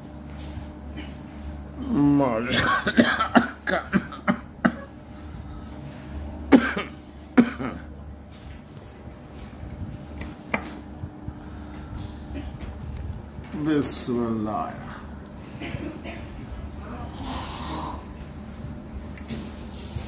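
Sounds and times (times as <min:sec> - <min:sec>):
low room hum: 0:00.0 - 0:20.0
person coughing: 0:02.5 - 0:05.0, 0:06.5 - 0:07.9, 0:12.3 - 0:12.7, 0:15.6 - 0:16.4.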